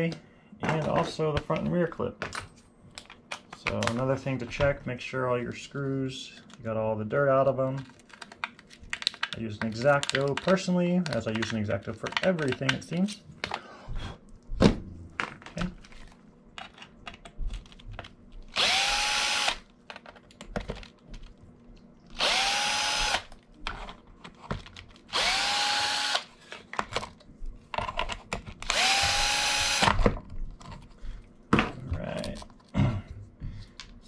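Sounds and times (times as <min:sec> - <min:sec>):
electric drill motor whine: 0:18.5 - 0:19.6, 0:22.2 - 0:23.3, 0:25.1 - 0:26.3, 0:28.7 - 0:30.0.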